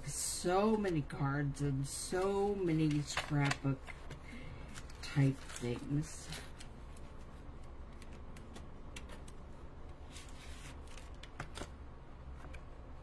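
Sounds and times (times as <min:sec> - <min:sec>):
paper and plastic rustling: 0:02.0 - 0:09.3, 0:10.0 - 0:11.8.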